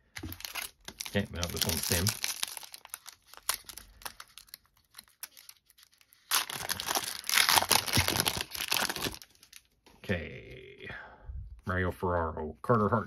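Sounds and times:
foil wrapper tearing and crinkling: 0.3s - 9.6s.

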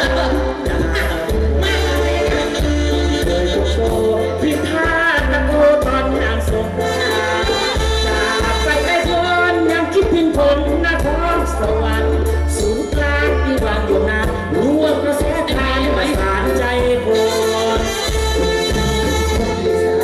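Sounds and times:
live band music through speakers: 0.0s - 20.0s.

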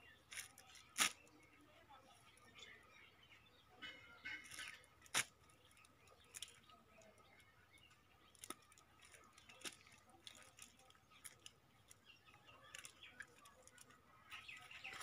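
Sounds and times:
cast net clicks and rustles: 0.3s - 1.4s, 8.3s - 12.0s, 12.6s - 14.0s.

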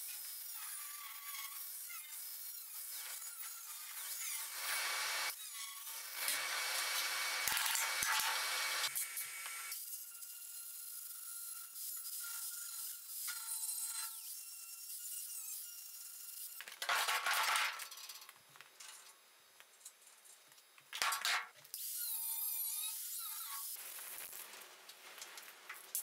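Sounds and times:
angle grinder cutting sheet steel: 2.1s - 5.4s, 6.0s - 9.8s.

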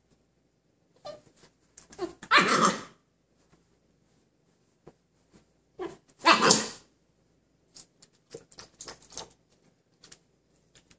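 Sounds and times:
puppy breathy bark: 5.8s - 6.8s.

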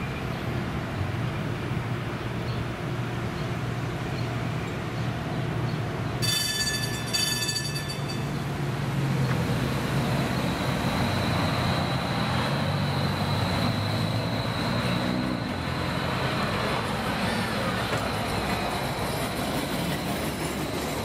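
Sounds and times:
streetcar high-pitched whine: 0.0s - 21.0s
ringing tone: 6.2s - 8.6s.

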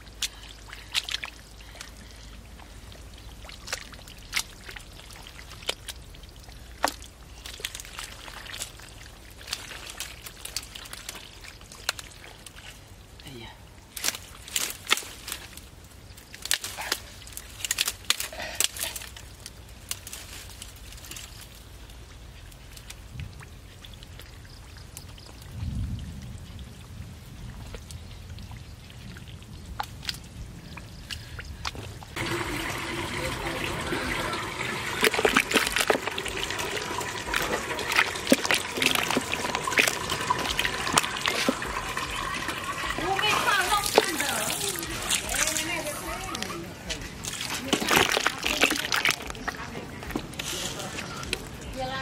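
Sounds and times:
hands splashing in muddy water: 0.0s - 12.8s, 29.7s - 51.6s
water dripping: 0.0s - 52.0s.

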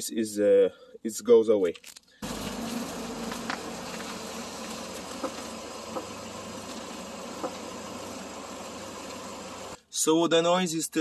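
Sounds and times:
car engine idling: 2.2s - 9.8s.

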